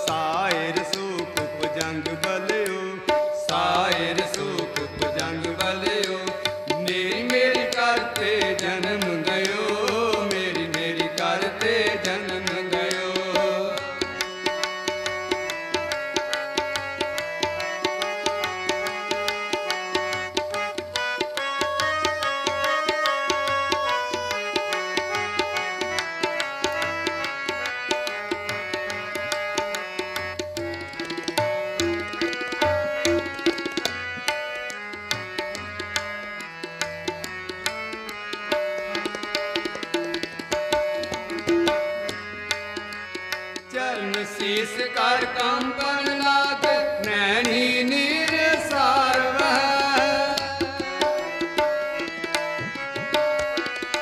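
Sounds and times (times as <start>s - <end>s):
person singing: 0.0s - 14.1s, 43.7s - 51.5s
harmonium melody: 0.0s - 54.0s
tabla rhythm: 0.0s - 54.0s.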